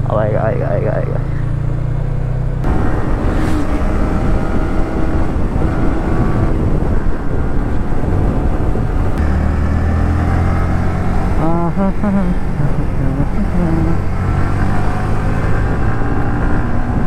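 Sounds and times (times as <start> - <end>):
motorcycle engine running: 0.8 - 16.7
wind noise on microphone: 2.6 - 17.0
deep steady hum: 8.7 - 14.4.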